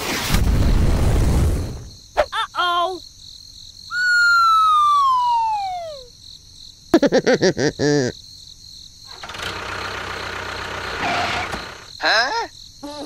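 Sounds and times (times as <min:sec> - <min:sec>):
short chirps: 0:03.9 - 0:06.1
whistle-like falling tone: 0:03.9 - 0:06.1.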